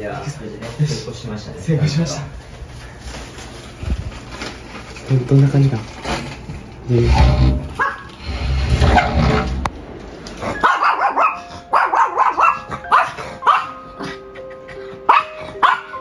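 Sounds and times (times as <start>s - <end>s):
dog barking: 7.8s - 8.1s, 10.6s - 13.8s, 15.1s - 16.0s
background music with held notes: 11.4s - 16.0s.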